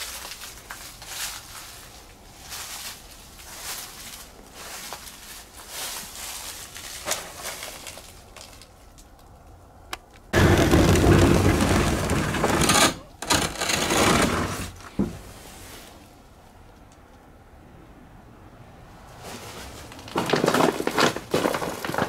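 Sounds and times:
wooden door grinding open: 10.4 - 15.2.

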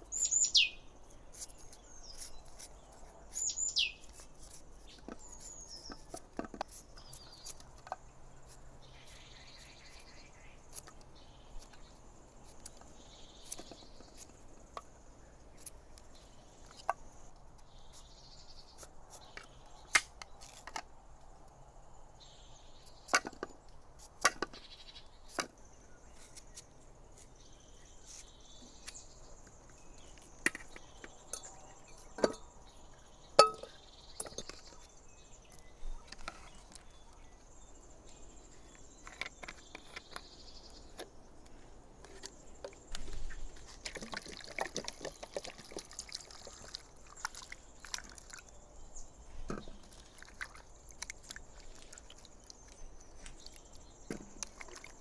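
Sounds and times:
insects chirping: 24.4 - 55.0
chunks knocking on plate and pot: 33.4 - 34.4.

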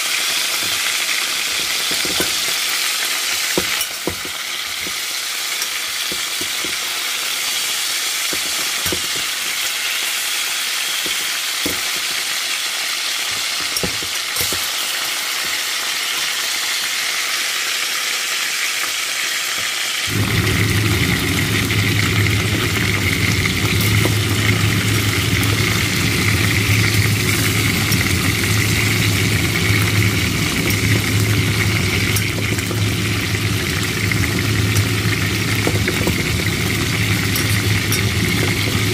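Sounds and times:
chicken sizzling in oil: 0.0 - 38.9
steady low hum: 20.1 - 38.9
metal turner clicking on pot: 33.7 - 38.9.

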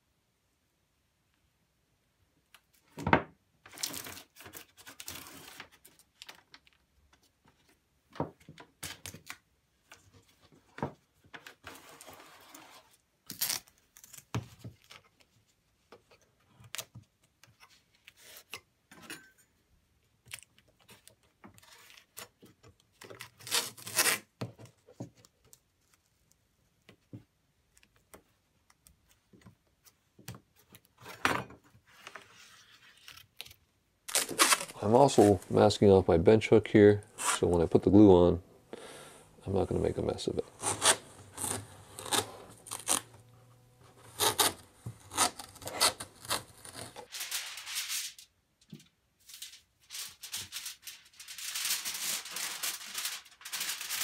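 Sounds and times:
tape rasping off roll: 40.5 - 48.2.

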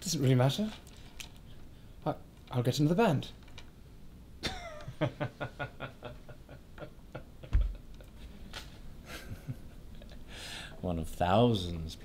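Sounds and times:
man chuckling: 4.4 - 8.3, 9.0 - 10.3.

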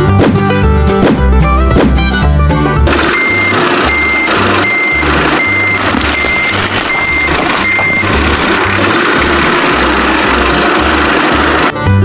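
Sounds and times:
background music with bass: 0.0 - 12.0
vehicle reversing beeper: 3.0 - 8.4.

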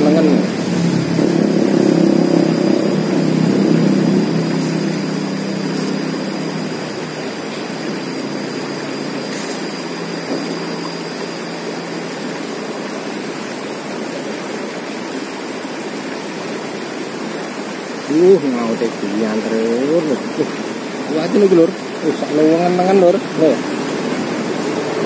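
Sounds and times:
vehicle engine: 0.0 - 12.3
river running over rocks: 0.0 - 25.0.

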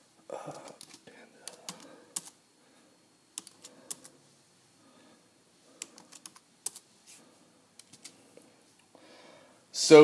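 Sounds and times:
laptop keyboard typing: 0.5 - 2.4, 3.3 - 4.2, 5.8 - 6.9, 7.8 - 8.2.

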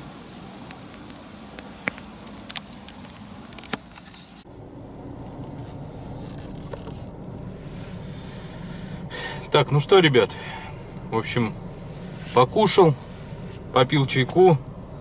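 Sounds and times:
campfire crackling and popping: 0.0 - 4.4
steady low hum: 0.0 - 15.0.

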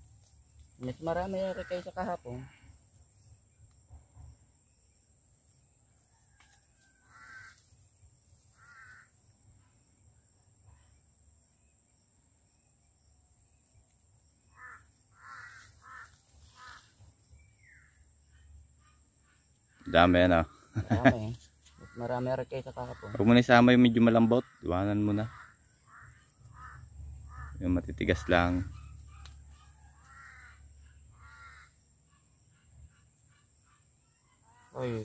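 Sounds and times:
crows cawing: 1.1 - 2.6, 6.8 - 7.7, 8.5 - 9.2, 14.5 - 16.9, 20.4 - 31.8.

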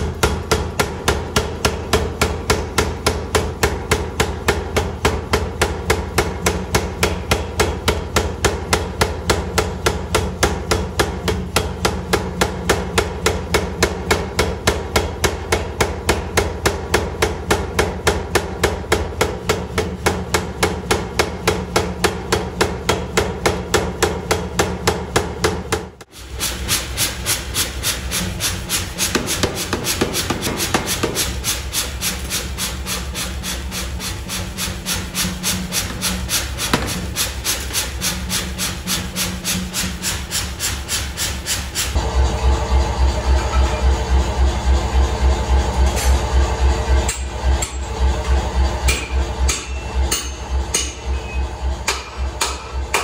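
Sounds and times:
power hammer striking hot steel: 0.0 - 42.0, 45.4 - 53.0
motor hum: 41.8 - 53.0.

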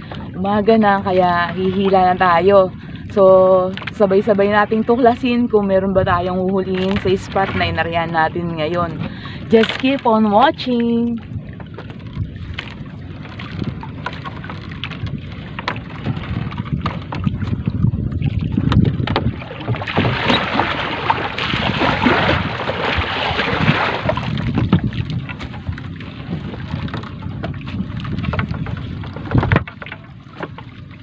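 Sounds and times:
water rushing and splashing: 0.0 - 31.0
wind rumble on microphone: 0.0 - 31.0
small knocks: 28.2 - 30.7.

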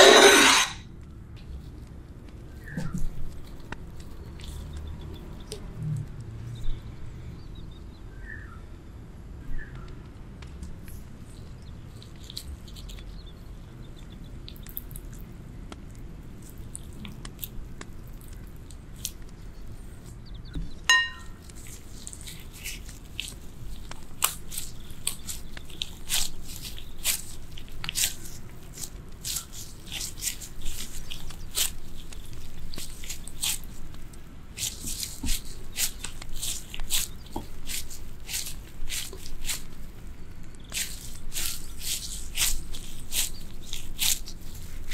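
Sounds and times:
gloved hands squishing rice: 1.5 - 5.6, 10.7 - 20.4, 21.2 - 44.9
sharp knock with ringing tone: 20.9 - 21.3.

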